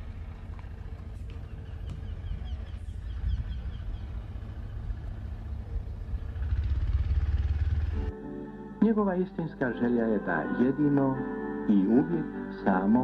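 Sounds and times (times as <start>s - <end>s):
dense low rumble: 0.0s - 8.2s
bird chirping: 1.2s - 7.2s.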